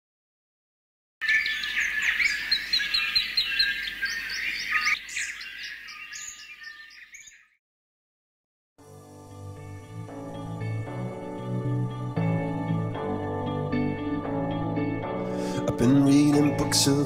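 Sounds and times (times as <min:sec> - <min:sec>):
birds chirping and singing: 0:01.2 - 0:07.6.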